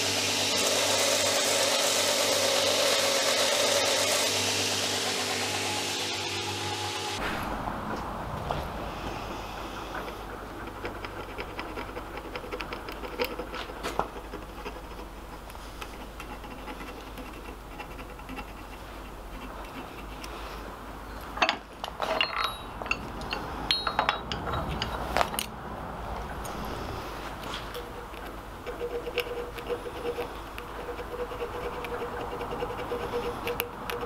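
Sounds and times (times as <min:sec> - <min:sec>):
tools scratching on anvil: 0:10.0 - 0:20.6, 0:27.4 - 0:34.0.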